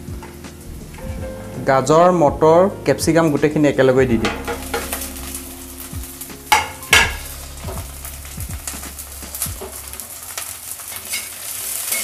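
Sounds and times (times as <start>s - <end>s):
vegetables sizzling in oil: 4.2s - 12.0s
vegetables clattering into pan: 6.5s - 7.3s.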